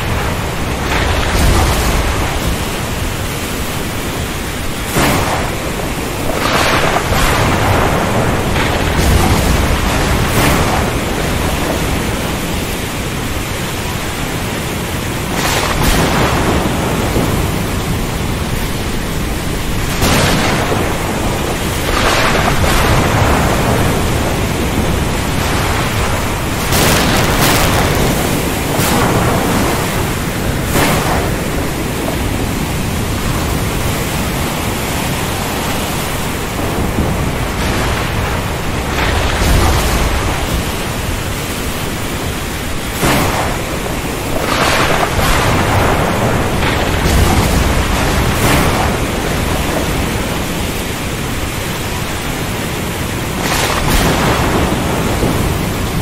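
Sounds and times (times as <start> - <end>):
thunder cracks: 0.0 - 13.4, 14.8 - 34.8, 36.0 - 41.4, 42.4 - 51.4, 53.0 - 56.0
deep thunder rumble: 0.0 - 56.0
rain hissing: 0.0 - 56.0
waves: 0.0 - 56.0
wind: 0.0 - 56.0.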